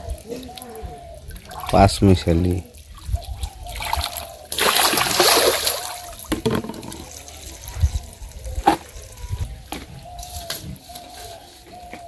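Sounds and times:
water trickling: 0.0s - 8.4s
water splashing in bucket: 0.6s - 8.9s.

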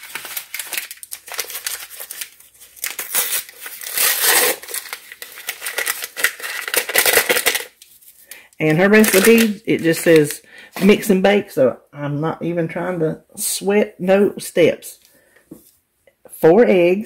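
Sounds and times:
pouch crinkling and rustling: 0.0s - 8.3s, 8.9s - 10.4s.

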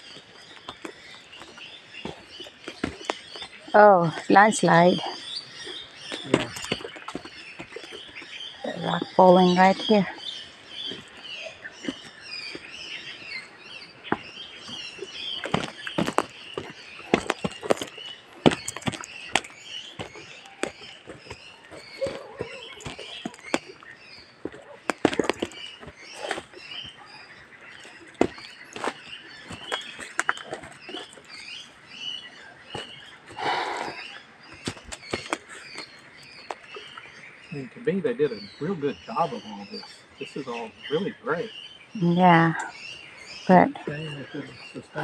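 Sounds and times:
footsteps on dry leaves and twigs: 0.0s - 3.7s, 6.1s - 9.9s, 10.5s - 36.9s
small birds chirping: 0.0s - 45.0s.

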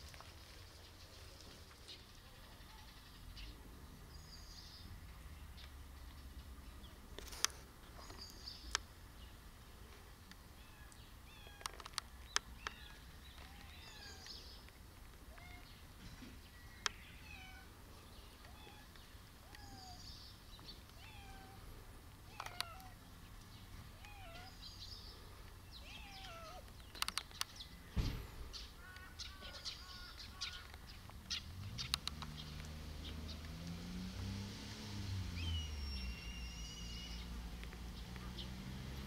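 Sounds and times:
birds chirping: 0.7s - 34.0s, 34.9s - 39.0s
sharp clicks: 11.6s - 15.7s, 26.2s - 27.6s, 31.8s - 32.8s
cat meowing softly: 15.3s - 15.8s, 17.2s - 17.7s, 18.5s - 20.0s, 21.0s - 21.6s, 22.3s - 23.0s, 24.0s - 24.6s, 25.8s - 26.7s.

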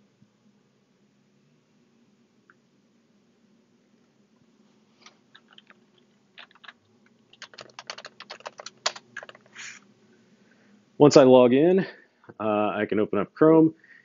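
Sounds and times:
keyboard keys clicking: 5.4s - 5.8s, 6.4s - 9.6s.

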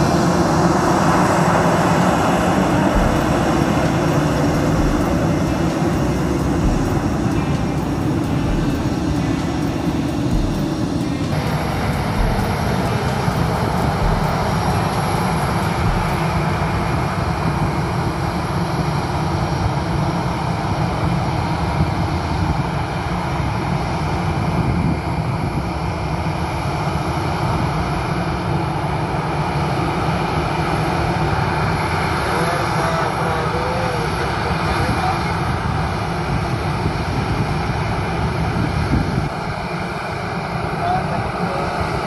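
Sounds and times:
jet engines at taxi power: 0.0s - 42.0s.

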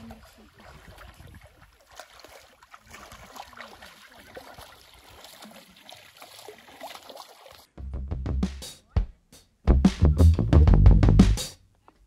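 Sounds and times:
water splashing around wading legs: 0.0s - 7.7s.

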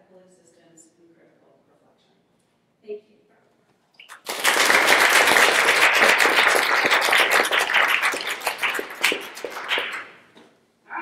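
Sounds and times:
audience applauding: 4.1s - 10.3s.

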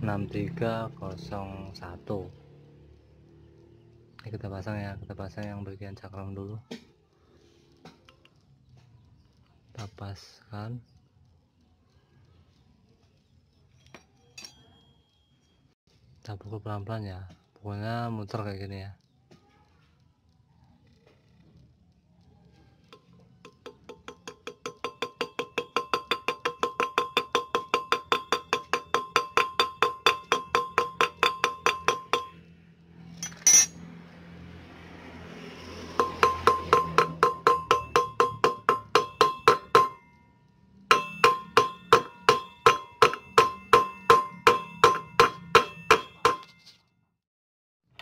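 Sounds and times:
hammer tapping on metal: 22.9s - 32.5s, 35.8s - 46.7s.

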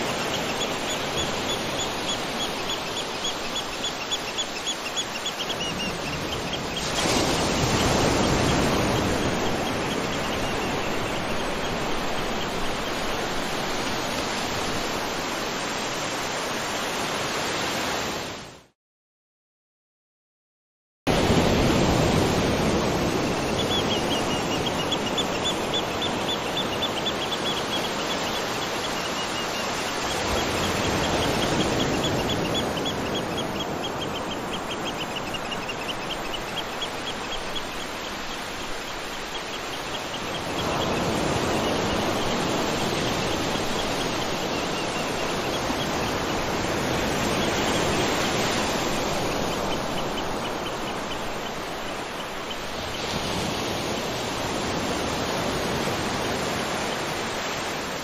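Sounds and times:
water rushing: 0.0s - 18.4s, 21.1s - 58.0s.

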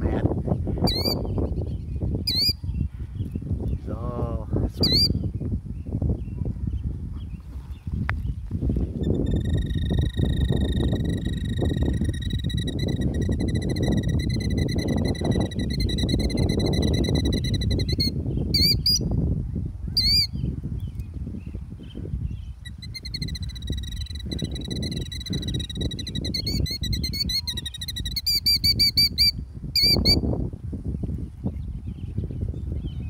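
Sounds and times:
wind rumble on microphone: 0.0s - 33.0s
bird alarm trill: 0.8s - 2.8s, 4.8s - 5.3s, 8.9s - 19.2s, 20.0s - 20.5s, 21.9s - 30.2s.

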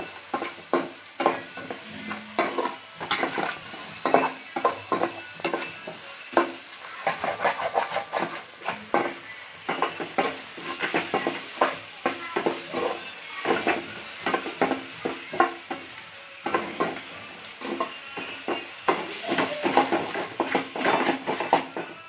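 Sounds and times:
food sizzling: 0.0s - 22.0s
spoon scraping a metal pot: 7.0s - 11.3s.

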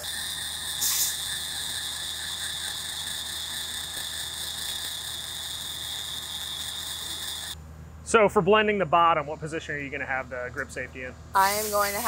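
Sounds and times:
rotary grinder whining: 0.0s - 7.6s.

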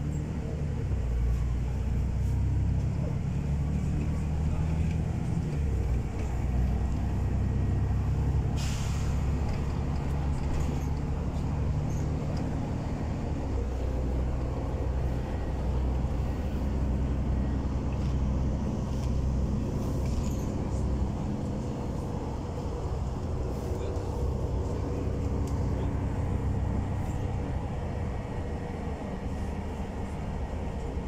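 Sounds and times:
bus engine drone: 0.0s - 31.0s
road noise: 0.0s - 31.0s
compressed air hiss: 8.6s - 9.2s.

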